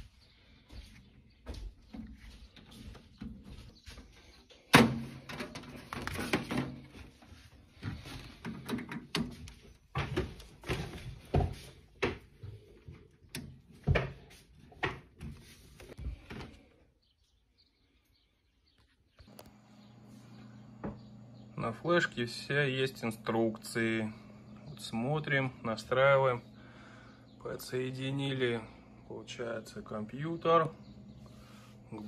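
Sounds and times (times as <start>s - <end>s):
cable plugs clicking and knocking: 8.4s - 11.4s.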